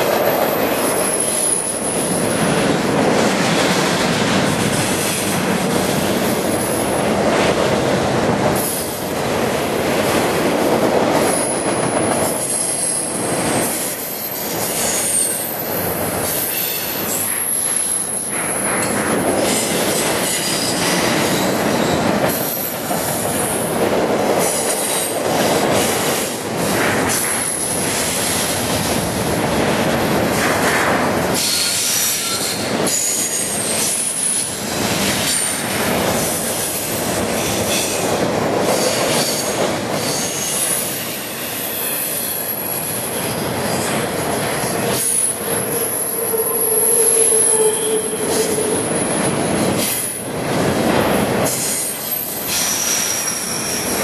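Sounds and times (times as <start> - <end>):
freight train rumbling and rattling: 0.0 - 54.0
low squealing tone: 45.7 - 49.5.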